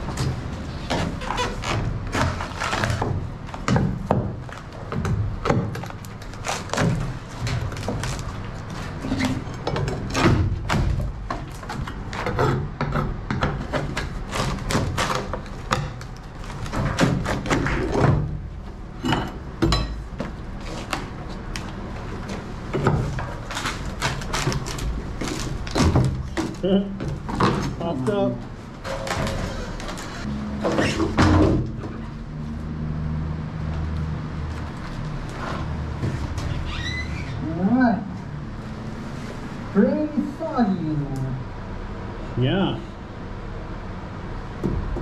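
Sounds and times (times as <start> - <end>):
fiberglass and wood cracking: 0.1 - 12.3, 13.6 - 18.4, 23.1 - 27.7.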